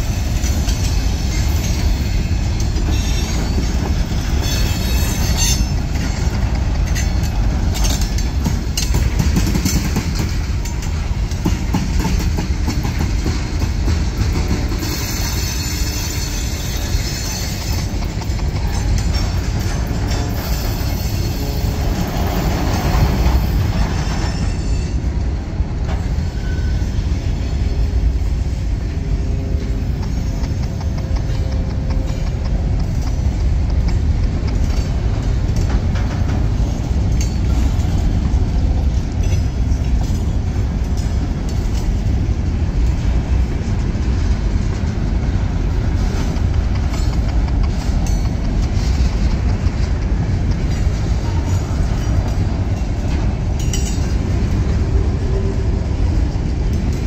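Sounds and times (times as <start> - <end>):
rattling train cars: 0.0 - 57.0
train wheels rumbling on rails: 0.0 - 57.0.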